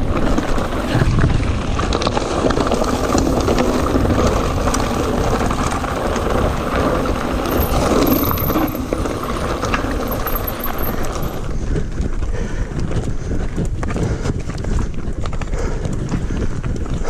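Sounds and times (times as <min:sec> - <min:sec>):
tyres rumbling over gravel: 0:00.0 - 0:11.6
bike rattling: 0:00.0 - 0:17.0
wind on microphone: 0:00.0 - 0:17.0.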